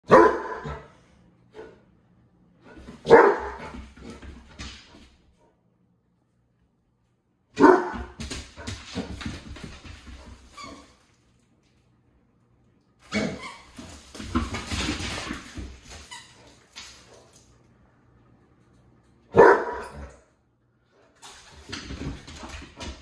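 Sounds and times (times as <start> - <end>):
dog barking: 0.1 - 0.9, 3.0 - 3.6, 7.6 - 8.2, 19.3 - 20.1.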